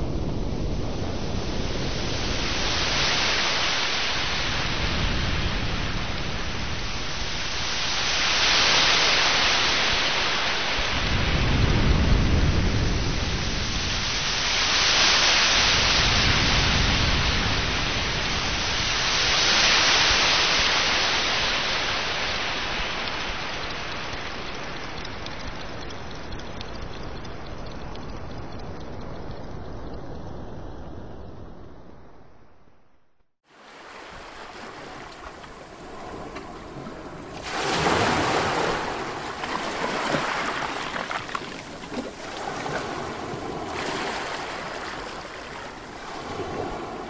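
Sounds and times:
sea waves washing: 1.5s - 25.4s, 33.5s - 47.0s.

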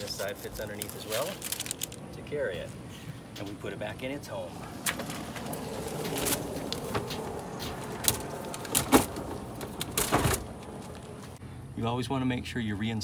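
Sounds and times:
plastic scraping and rustling: 0.0s - 2.0s.

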